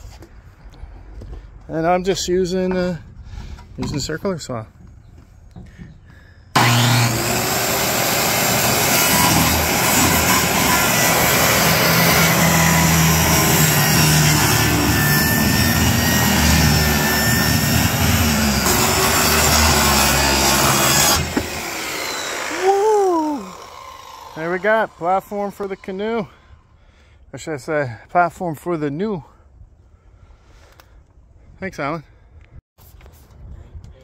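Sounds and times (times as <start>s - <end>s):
circular saw cutting plywood: 6.6s - 26.4s.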